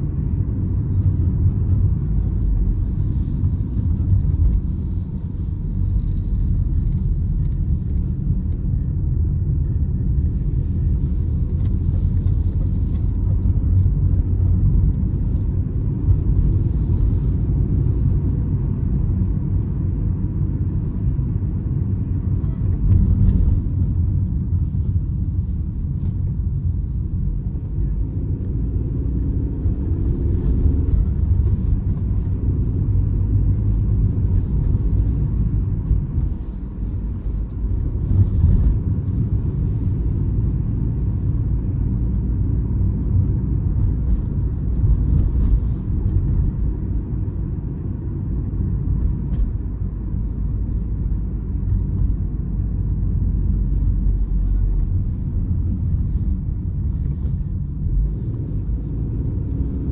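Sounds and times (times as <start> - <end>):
car engine rumble: 0.0 - 59.9
road noise: 0.0 - 59.9.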